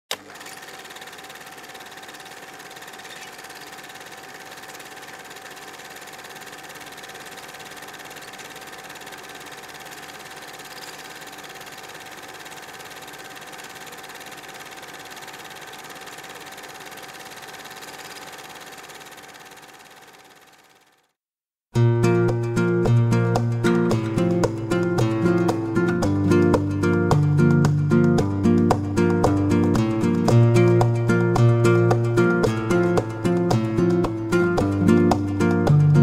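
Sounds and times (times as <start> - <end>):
mechanical whirring hum: 0.1 - 21.1.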